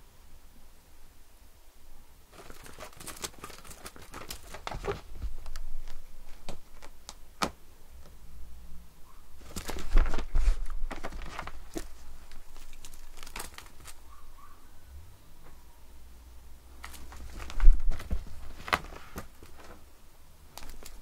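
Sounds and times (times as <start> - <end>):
cat claws scratching on rug: 2.4 - 7.0, 9.4 - 14.1, 16.8 - 19.8, 20.5 - 21.0.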